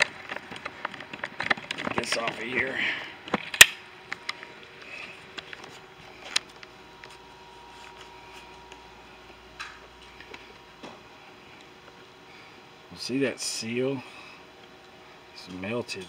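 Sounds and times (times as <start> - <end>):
faint hum: 0.0 - 16.0.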